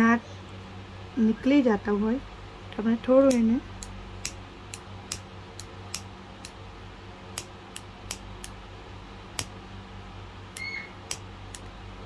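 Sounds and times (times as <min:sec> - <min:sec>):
short high squeak: 0:10.6 - 0:11.0.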